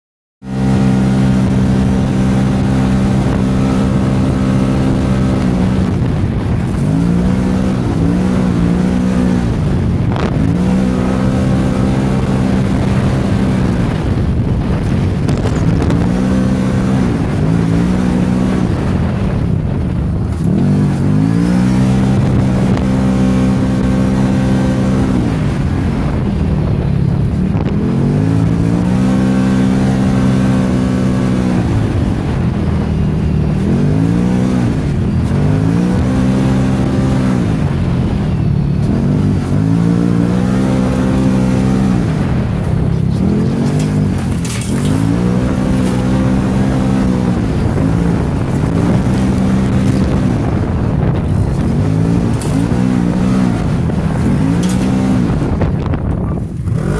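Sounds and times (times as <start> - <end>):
engine revving: 0.4 - 56.9
wind rushing: 0.8 - 56.9.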